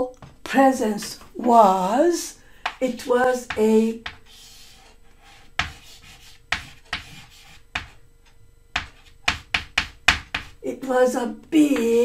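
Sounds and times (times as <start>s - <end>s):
chalk scratching on chalkboard: 3.5s - 8.0s, 8.8s - 10.6s.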